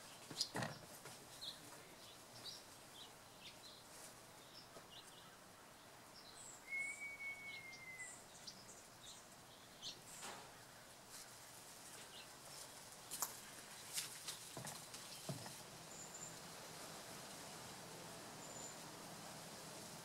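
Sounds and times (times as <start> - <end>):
small birds chirping: 0.0 - 16.8, 18.3 - 19.0
long whistled note: 6.7 - 8.1.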